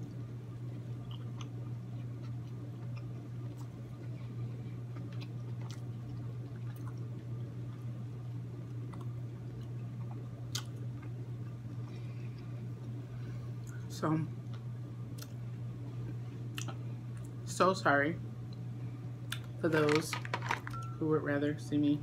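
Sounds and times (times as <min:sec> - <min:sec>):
steady low hum: 0:00.0 - 0:22.0
wet chewing: 0:04.9 - 0:07.9.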